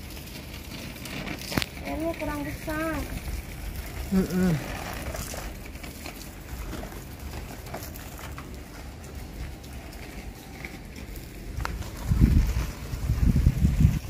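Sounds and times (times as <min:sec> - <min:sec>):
garden hose spraying water: 0:00.0 - 0:14.0
wind rumble on microphone: 0:01.6 - 0:06.8, 0:09.1 - 0:14.0.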